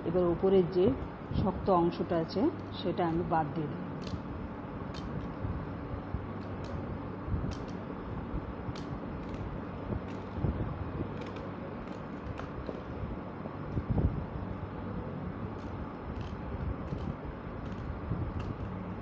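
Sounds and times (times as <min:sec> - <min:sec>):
steady low hum: 0:00.0 - 0:19.0
knife cutting tough rind: 0:08.7 - 0:13.0.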